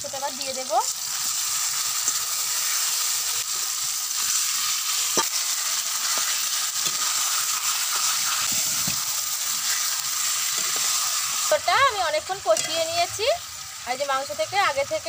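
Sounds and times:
meat sizzling in hot oil: 0.0 - 15.0
metal spatula scraping a wok: 1.2 - 11.4, 12.4 - 13.0.

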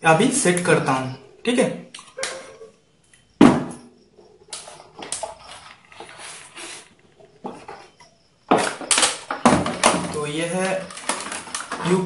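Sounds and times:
plastic case clattering and scraping: 7.4 - 12.0.

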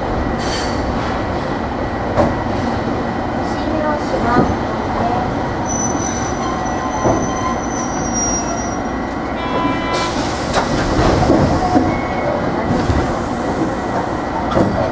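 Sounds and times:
tram wheels rolling on rails: 0.0 - 14.9
high squeal: 5.6 - 8.9.

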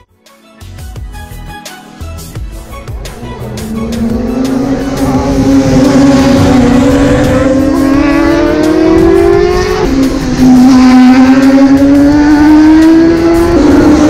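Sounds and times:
racing motorcycle engine accelerating: 2.5 - 14.0.

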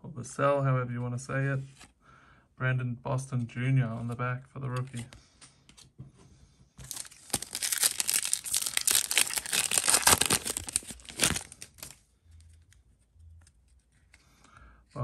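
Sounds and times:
plastic wrapper tearing and crinkling: 6.8 - 12.0.

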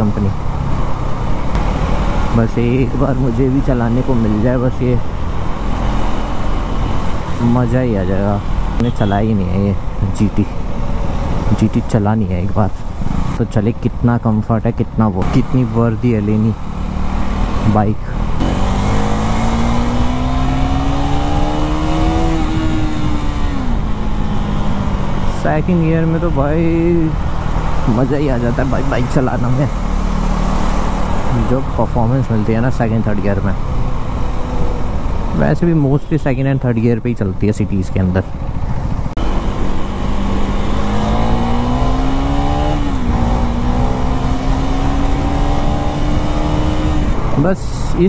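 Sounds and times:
wind and road noise: 0.0 - 48.0
motorcycle engine accelerating: 15.2 - 35.5, 38.3 - 48.0.

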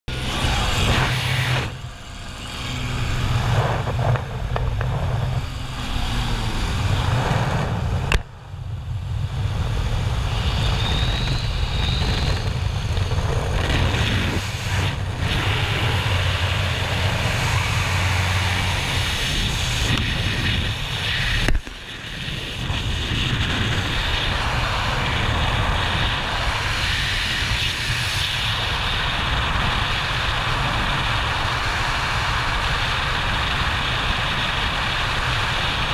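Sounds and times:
propeller plane engine droning: 0.1 - 35.9
wind rushing on microphone: 0.1 - 35.9.

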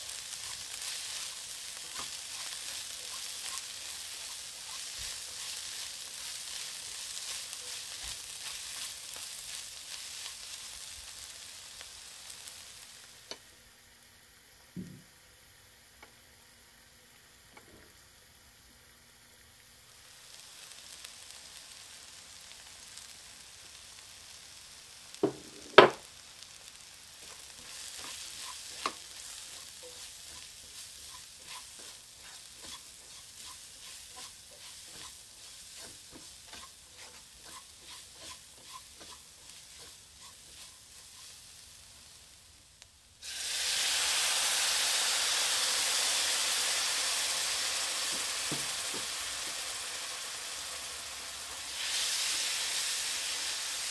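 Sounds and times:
spatula scraping a wok: 0.0 - 12.8, 26.6 - 42.0
loud hiss of steam: 0.0 - 13.3, 43.1 - 53.9
onions sizzling in a wok: 0.0 - 53.9.

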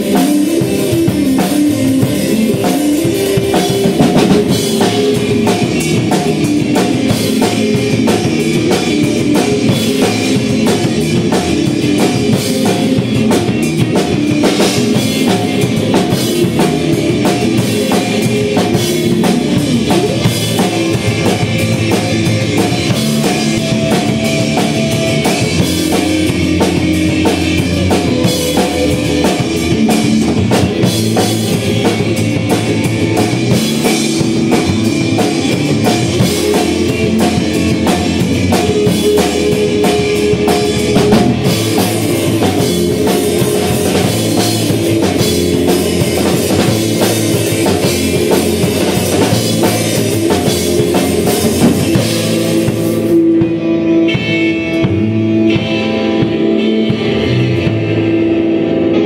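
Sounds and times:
bass guitar: 0.0 - 59.0
drum kit: 0.0 - 59.0
electric guitars: 0.0 - 59.0.

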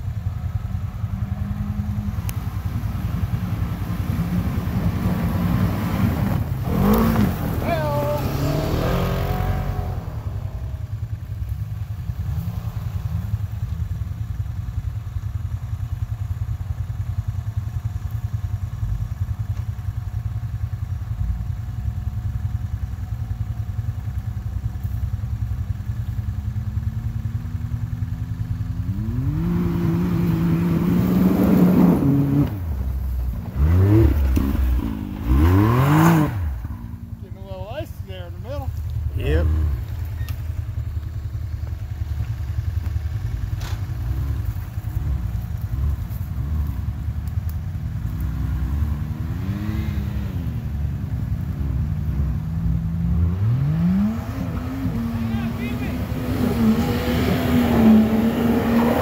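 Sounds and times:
utv driving past: 0.2 - 14.1, 26.7 - 41.0, 41.7 - 59.0
utv engine revving: 0.4 - 13.8, 26.8 - 40.7, 43.1 - 59.0.

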